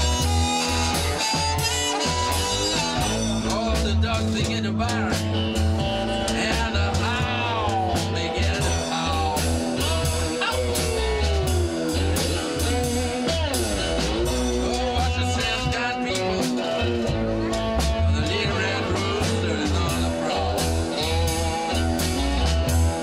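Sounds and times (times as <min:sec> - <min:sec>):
drums: 0:00.0 - 0:23.0
electric bass: 0:00.0 - 0:23.0
slide guitar blues: 0:00.0 - 0:23.0.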